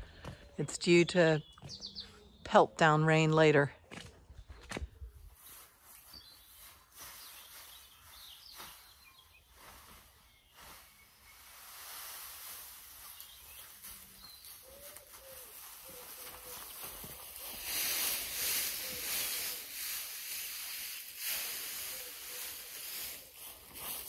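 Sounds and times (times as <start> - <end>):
small birds chirping: 0.0 - 2.8, 4.3 - 12.0, 12.6 - 24.0
straw rustling with pitchfork: 5.4 - 24.0.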